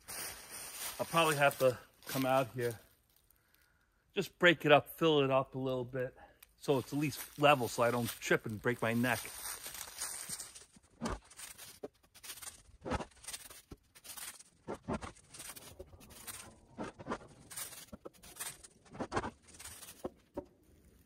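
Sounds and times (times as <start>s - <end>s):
dry leaves rustling underfoot: 0.0s - 3.3s, 6.7s - 16.6s, 17.4s - 20.2s.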